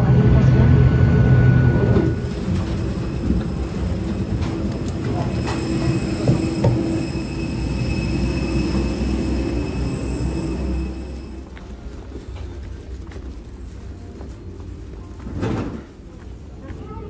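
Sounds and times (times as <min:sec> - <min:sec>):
aircraft drone with high whine: 0:00.0 - 0:12.5
footsteps on metal stairs: 0:02.0 - 0:07.3.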